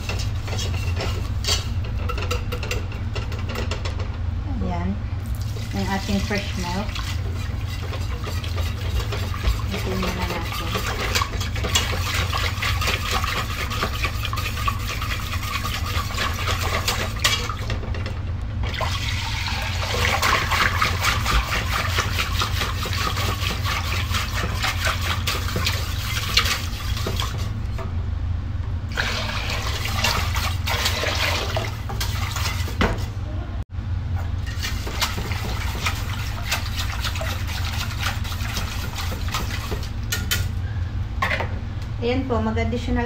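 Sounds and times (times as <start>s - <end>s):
wire whisk scraping a saucepan: 0.0s - 3.7s, 5.5s - 17.7s, 20.0s - 27.8s, 29.9s - 32.8s, 34.4s - 40.5s
steady low hum: 0.0s - 43.0s
milk pouring: 18.7s - 22.6s, 29.0s - 32.4s.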